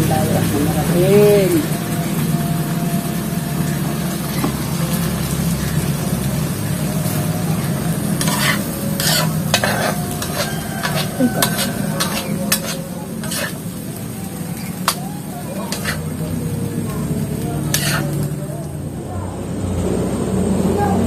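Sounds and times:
chili sizzling in hot oil: 0.0 - 20.6
spatula scraping a pan: 8.0 - 13.9, 15.6 - 16.2, 17.7 - 18.3.

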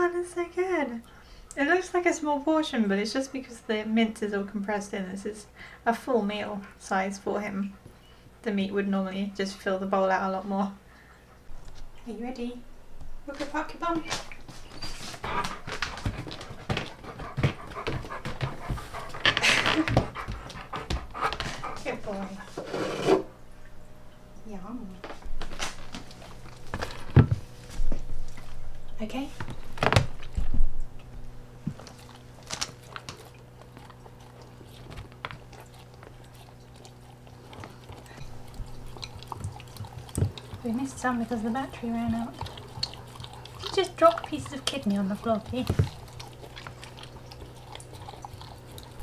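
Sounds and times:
dog panting: 14.6 - 22.5, 31.8 - 49.0.

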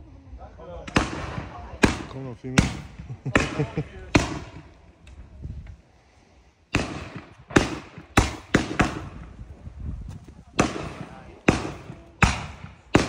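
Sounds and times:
firework bangs: 0.9 - 4.8, 6.7 - 9.4, 10.5 - 13.0.

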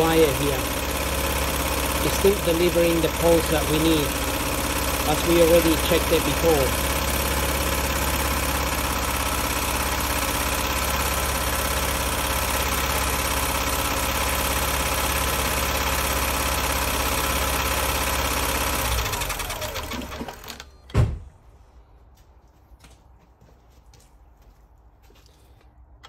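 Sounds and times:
car engine idling with misfire: 0.0 - 20.7.

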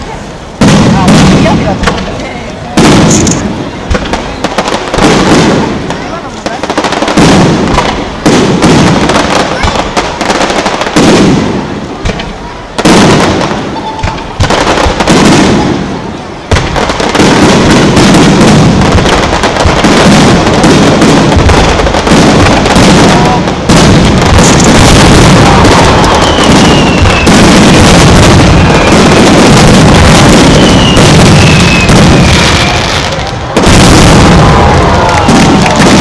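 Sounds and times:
fireworks booming and crackling: 0.0 - 36.0
falling firework whistles: 12.9 - 15.8, 24.2 - 36.0.

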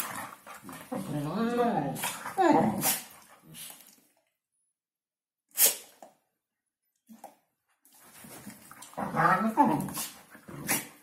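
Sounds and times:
dogs grumbling: 0.0 - 3.1, 8.8 - 11.0.

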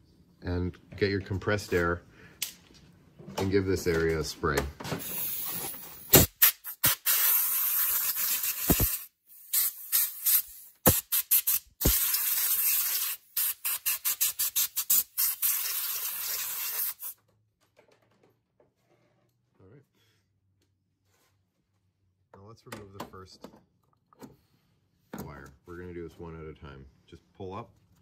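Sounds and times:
air blowgun hissing blasts: 5.0 - 17.1.

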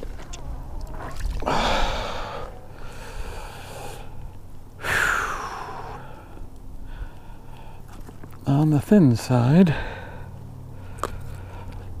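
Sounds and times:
person breathing out heavily: 1.4 - 4.2, 4.8 - 7.9.

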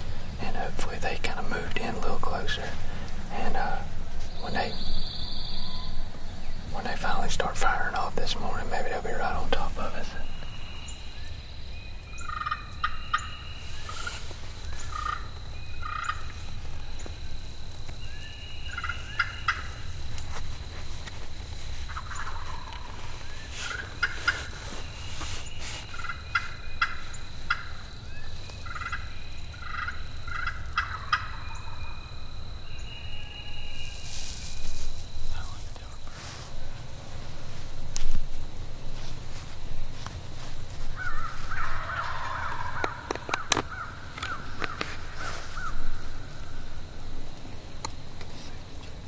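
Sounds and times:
turkeys gobbling: 12.2 - 16.4, 18.7 - 19.8, 21.9 - 24.6, 25.9 - 27.9, 28.6 - 31.8, 41.0 - 46.1.

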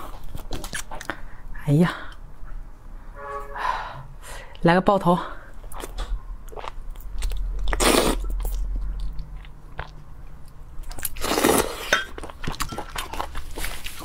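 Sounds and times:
person chewing wetly: 0.0 - 1.3, 5.6 - 14.0.

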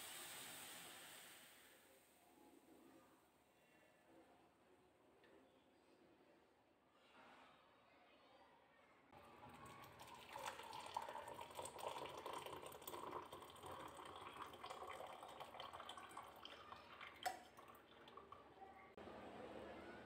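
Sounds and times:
tea trickling into mug: 9.4 - 18.5.

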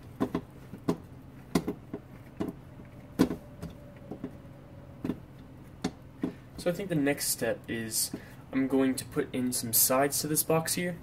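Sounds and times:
plastic sheet clicking and knocking: 0.0 - 4.4.

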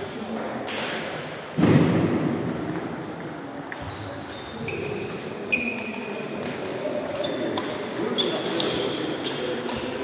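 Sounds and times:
loud thud: 1.6 - 2.4.

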